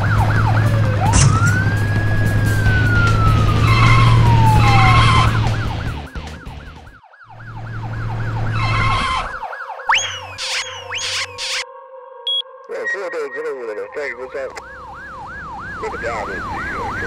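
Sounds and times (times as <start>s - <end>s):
cartoon police siren: 0.0s - 11.7s, 14.3s - 17.0s
short beeps: 12.3s - 13.0s.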